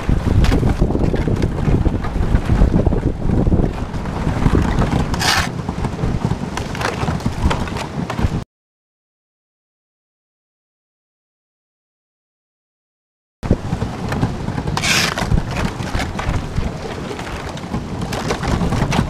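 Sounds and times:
kayak crunching through ice: 0.0s - 8.4s, 13.6s - 19.0s.

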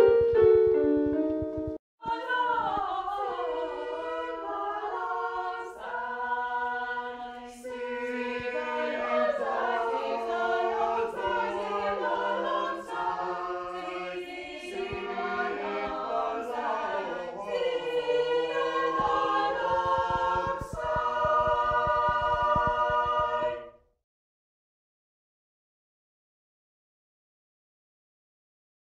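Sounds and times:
choir singing a cappella: 2.0s - 23.8s.

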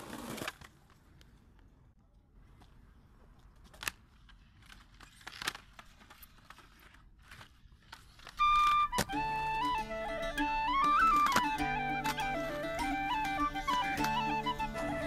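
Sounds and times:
music with sustained tones: 8.4s - 15.0s.

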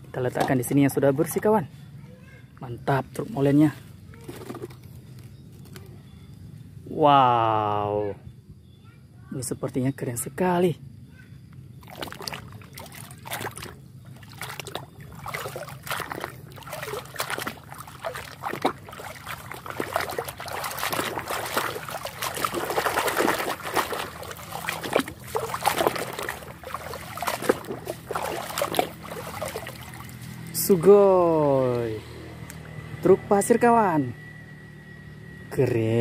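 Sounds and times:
water sloshing in a plastic tub: 0.0s - 1.6s, 2.9s - 5.8s, 11.6s - 31.2s
water dripping and trickling: 11.8s - 30.6s.

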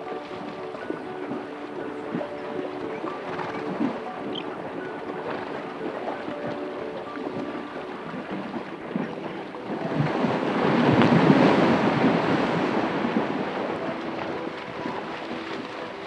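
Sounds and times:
rushing wind-like noise: 8.1s - 16.0s.

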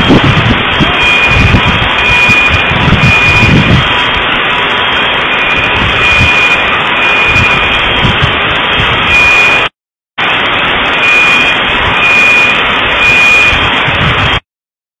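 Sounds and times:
loud distorted noise: 0.0s - 14.4s
high beeping tone: 0.8s - 3.8s, 5.3s - 8.2s, 9.0s - 9.7s, 11.0s - 13.7s.

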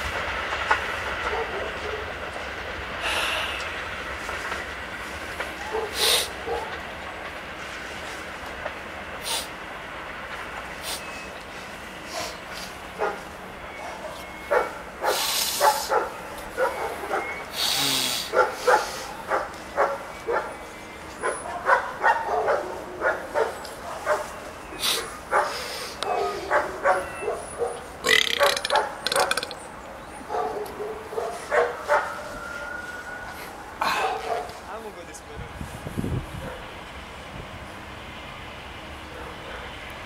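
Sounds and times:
dog barking: 1.2s - 2.1s, 5.6s - 6.8s, 13.0s - 17.4s, 18.3s - 20.6s, 21.2s - 24.4s, 25.3s - 29.3s, 30.2s - 32.3s, 34.0s - 34.6s, 36.4s - 36.7s, 39.2s - 39.8s
hiss bursts: 5.9s - 6.4s, 9.2s - 9.6s, 10.7s - 12.8s, 15.0s - 15.9s, 17.5s - 19.2s.

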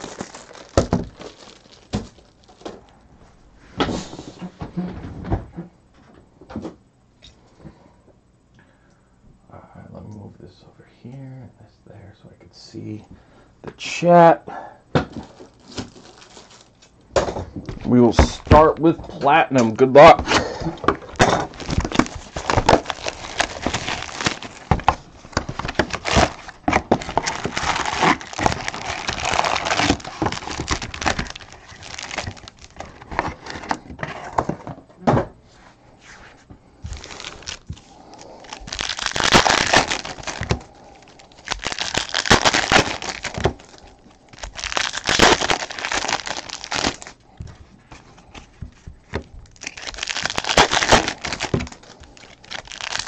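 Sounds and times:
foil card packs crinkling: 0.0s - 2.9s, 15.1s - 16.9s, 17.7s - 34.8s, 36.8s - 53.0s.

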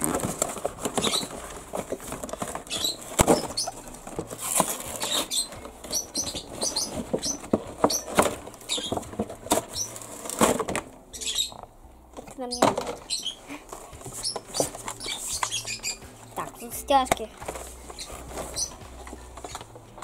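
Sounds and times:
cardboard box scraping and rustling: 0.0s - 10.7s, 17.5s - 18.8s.

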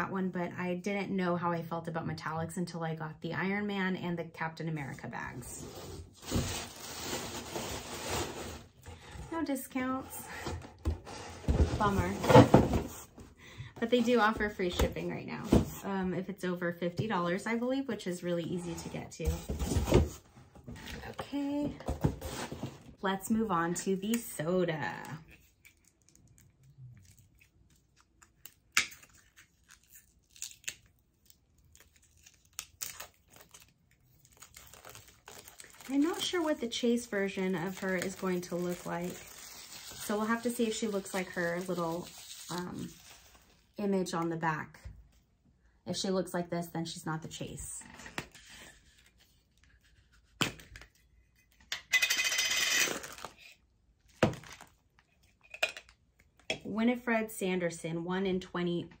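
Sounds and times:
plastic wrapping crinkling: 25.5s - 43.7s, 54.1s - 54.8s.

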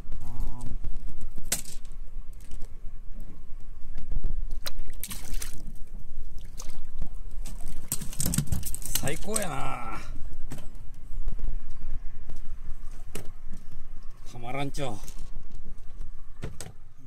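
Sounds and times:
water splashing against boat hull: 4.6s - 9.5s.

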